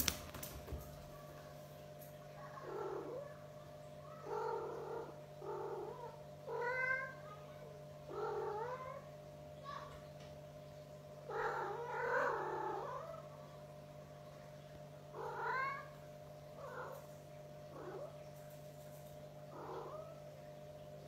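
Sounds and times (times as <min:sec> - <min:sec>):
steady low hum: 0:00.0 - 0:21.0
cat meowing: 0:06.0 - 0:07.2, 0:15.2 - 0:16.0.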